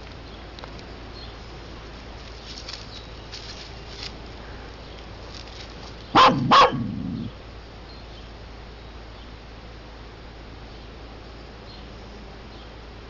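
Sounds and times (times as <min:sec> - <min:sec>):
dry leaves rustling: 0:00.0 - 0:07.2
dog short loud vocal sounds: 0:06.2 - 0:07.3.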